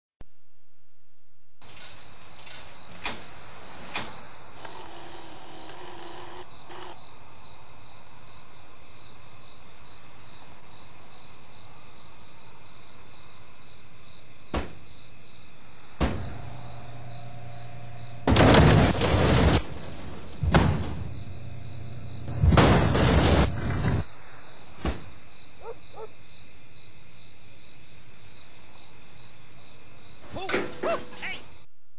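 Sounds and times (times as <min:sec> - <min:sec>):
vending machine motor hum: 0:16.1 - 0:19.0, 0:19.7 - 0:24.0.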